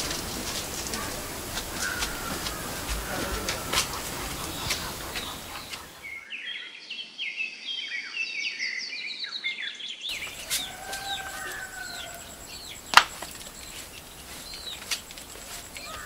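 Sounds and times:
chicken call: 0.0s - 6.0s, 10.1s - 16.0s
small birds chirping: 0.0s - 16.0s.

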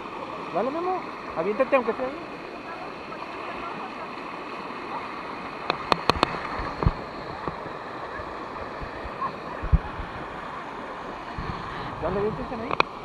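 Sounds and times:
river water rushing over cascades: 0.0s - 13.0s.

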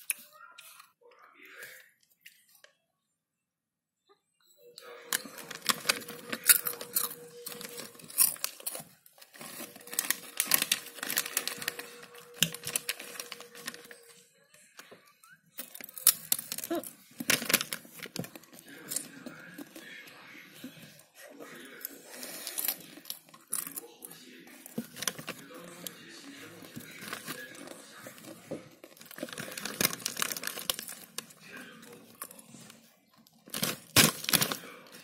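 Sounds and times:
snack packet crackling: 5.0s - 14.2s, 15.6s - 20.0s, 24.6s - 35.0s.

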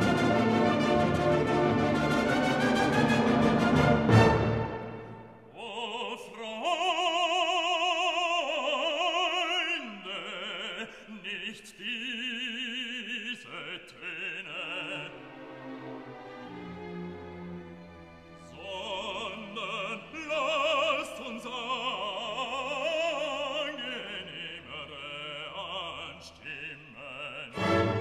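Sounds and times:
soft orchestral accompaniment: 0.0s - 5.5s, 14.4s - 26.0s, 27.4s - 28.0s
operatic voice singing: 5.5s - 15.5s, 18.4s - 28.0s.

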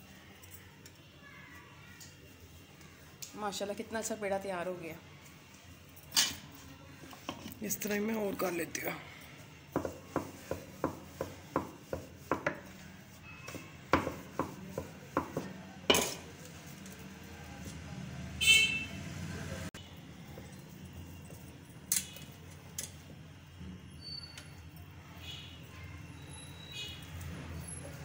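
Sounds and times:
rolling pin knocking on board: 9.7s - 12.7s, 13.9s - 15.6s.

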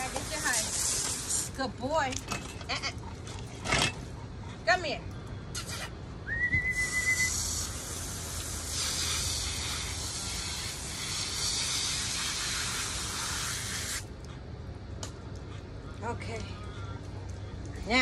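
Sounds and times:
hose nozzle spraying water: 0.0s - 1.6s, 7.0s - 14.1s
brief high whistle: 6.3s - 7.4s.

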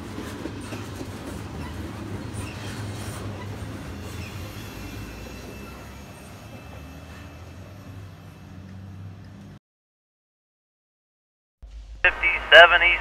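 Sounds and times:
train wheels rumbling on rail: 0.0s - 9.6s.

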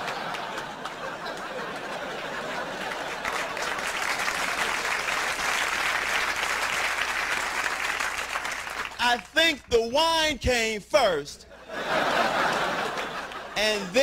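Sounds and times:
audience laughing: 0.0s - 5.0s, 11.5s - 14.0s
audience applauding: 0.0s - 9.4s, 12.3s - 14.0s.

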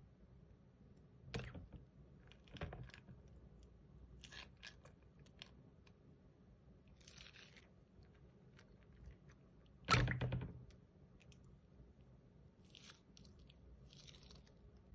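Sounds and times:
sticky slime squelches: 4.1s - 5.6s, 12.6s - 14.9s.

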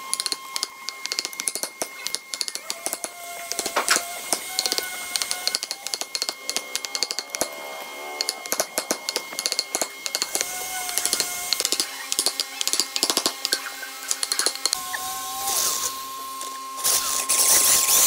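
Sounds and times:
wooden mallet tapping a chisel: 0.1s - 7.5s, 8.2s - 14.8s.

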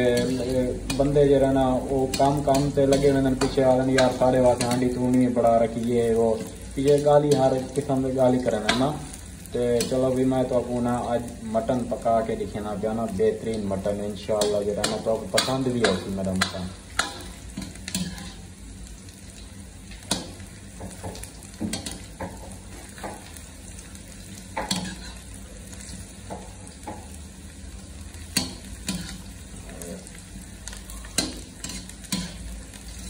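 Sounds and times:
onions sizzling in oil: 0.0s - 33.0s.

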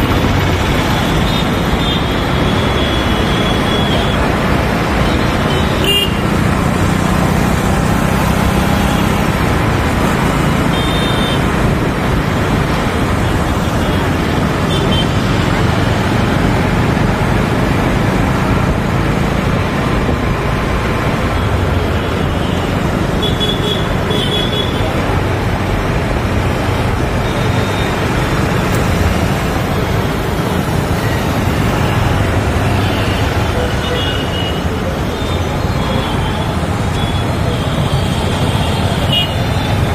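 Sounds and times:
motorcycle engine and road noise: 0.0s - 39.9s.

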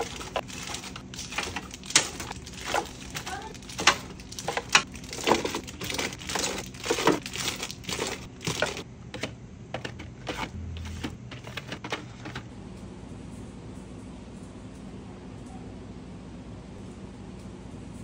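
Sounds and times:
cellophane wrappers rustling: 0.0s - 8.8s
wrapped candies crinkling: 0.0s - 8.8s.

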